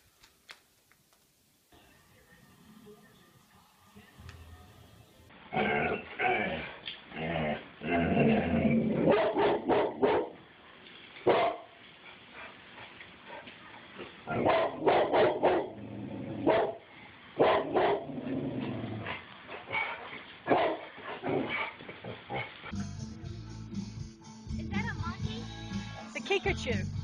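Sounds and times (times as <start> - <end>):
dog barking: 9.1 - 10.4, 11.2 - 11.8, 14.3 - 15.8, 16.4 - 16.8, 17.4 - 18.1, 19.6 - 22.6.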